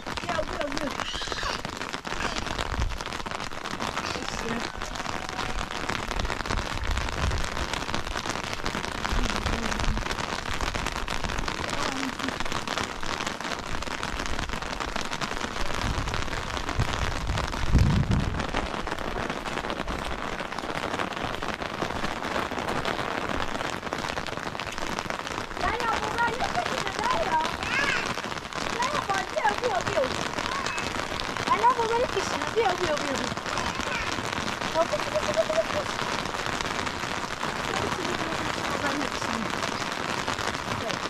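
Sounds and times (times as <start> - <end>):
steady rain hiss: 0.0 - 41.0.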